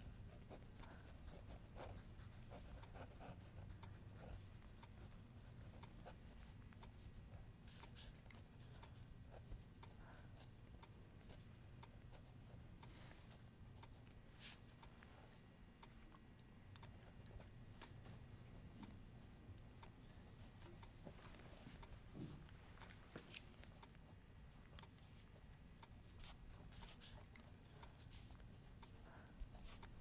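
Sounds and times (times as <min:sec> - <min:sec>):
low steady hum: 0:00.0 - 0:30.0
pencil scratching on paper: 0:00.1 - 0:06.6
small ticks: 0:24.8 - 0:30.0.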